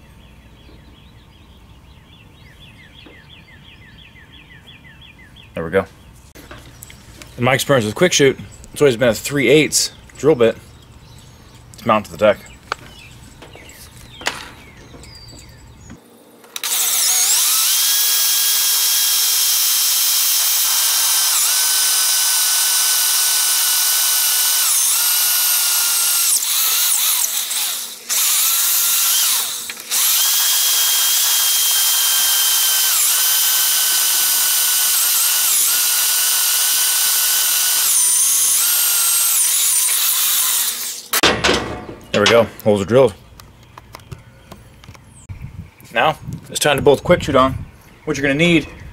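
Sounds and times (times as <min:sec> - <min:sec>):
electric drill whining: 0:16.5 - 0:41.2.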